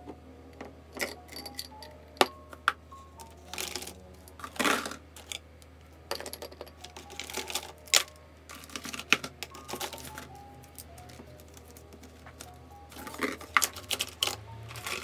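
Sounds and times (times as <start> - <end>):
plastic pens clicking and clattering: 2.6 - 5.4, 6.1 - 15.0.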